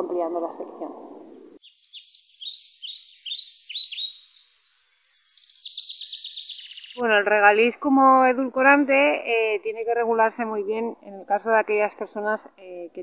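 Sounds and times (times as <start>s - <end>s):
birdsong chirps and trill: 0.2s - 10.5s.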